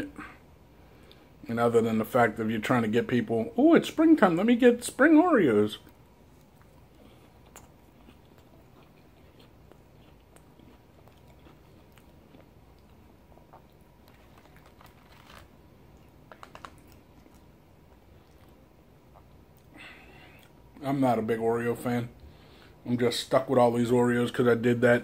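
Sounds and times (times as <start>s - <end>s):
cookie crunching and chewing: 5.6s - 20.9s.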